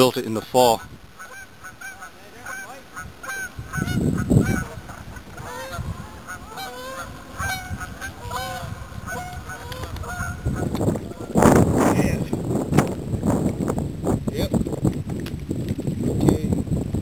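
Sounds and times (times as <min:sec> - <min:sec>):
waterfowl honking: 0:00.8 - 0:11.4.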